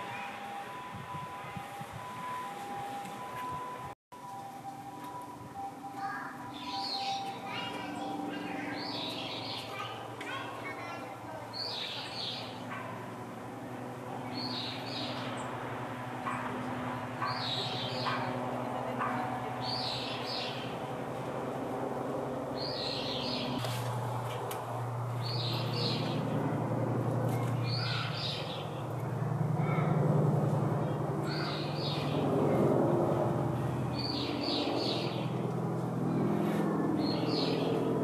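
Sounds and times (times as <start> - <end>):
steady low hum: 0.0 - 38.0
songbird high call: 27.7 - 28.6.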